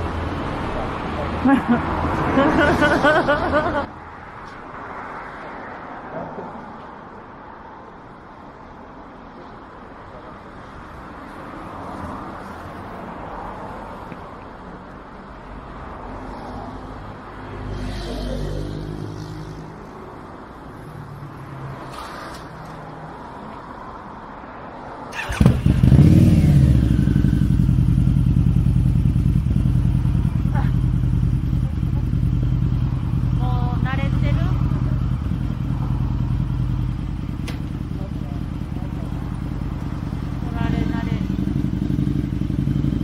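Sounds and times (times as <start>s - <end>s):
passing vehicle engine: 0.0s - 6.8s, 15.7s - 43.0s
street background: 0.0s - 43.0s
motorcycle engine starting and idling: 25.1s - 43.0s.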